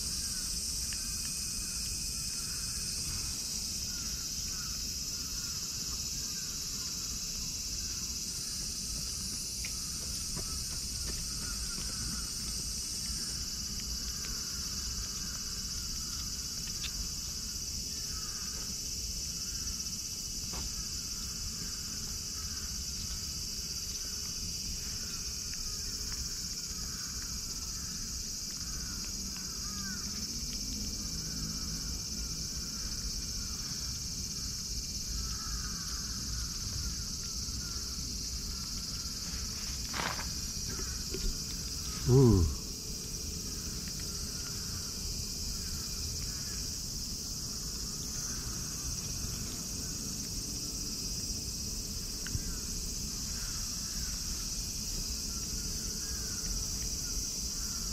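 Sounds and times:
high-pitched insect chorus: 0.0 - 57.9
short voice-like sound: 42.0 - 42.7.

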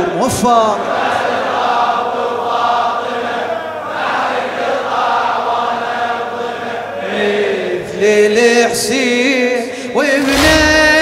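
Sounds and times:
crowd of men chanting: 0.3 - 8.9
man's voice singing: 6.3 - 11.0.

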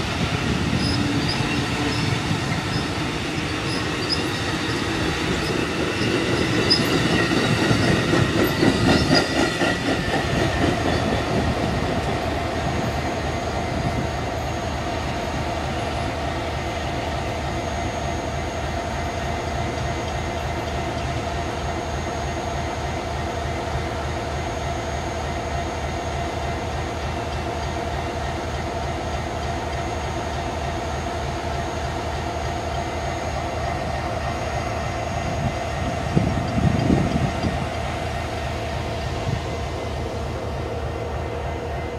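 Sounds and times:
diesel locomotive drone: 0.0 - 41.9
train wheel squeal: 0.0 - 41.9
wheels clickety-clack: 0.8 - 13.0, 35.8 - 38.1.

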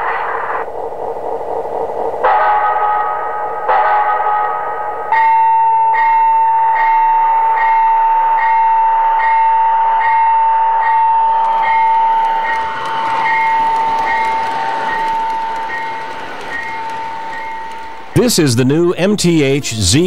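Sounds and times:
electronic locomotive bell ringing: 2.2 - 19.4
model train running: 10.0 - 20.0.

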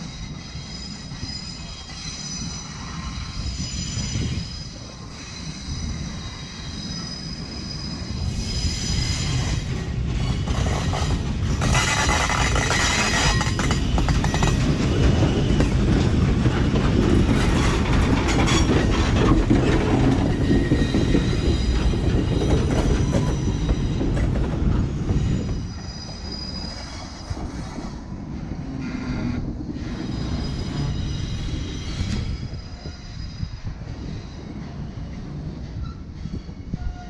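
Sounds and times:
thin high squeals: 0.0 - 9.7, 25.1 - 28.0, 28.9 - 34.4
steam locomotive passing: 0.0 - 37.0.

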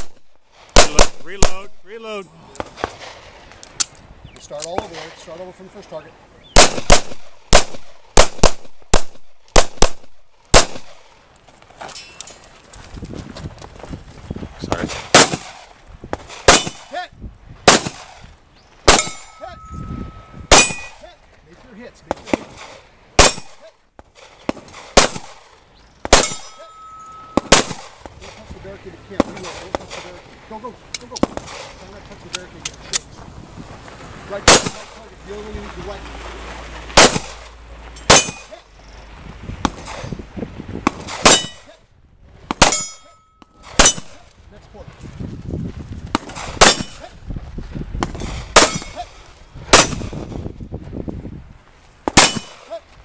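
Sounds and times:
pistol shots: 0.8 - 1.7, 6.5 - 11.1, 14.7 - 17.0, 17.6 - 21.0, 22.1 - 23.6, 24.4 - 28.1, 34.4 - 34.9, 37.0 - 37.5, 38.1 - 38.5, 40.9 - 41.7, 42.5 - 44.2, 46.2 - 47.1, 48.0 - 49.0, 49.7 - 50.3, 52.1 - 52.7
metallic ring of steel targets: 11.9 - 12.4, 18.9 - 21.0, 23.2 - 23.6, 26.2 - 27.7, 38.0 - 38.6, 41.2 - 41.7, 42.6 - 44.3, 46.6 - 47.1, 48.6 - 50.0, 52.2 - 52.7
handgun shots: 15.1 - 15.6, 16.4 - 16.9, 18.9 - 19.7, 20.5 - 21.0, 23.2 - 23.6, 24.9 - 25.4, 26.1 - 26.6, 27.3 - 27.9, 38.1 - 38.5, 52.1 - 52.6.

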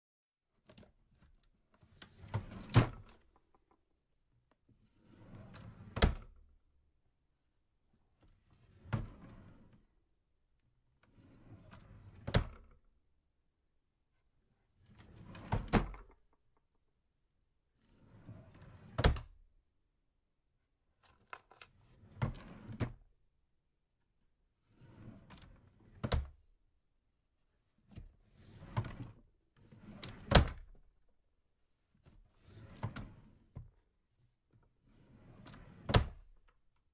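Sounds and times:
drawer sliding with knock: 15.0 - 16.1, 22.0 - 23.0, 29.8 - 30.8, 35.1 - 36.3.

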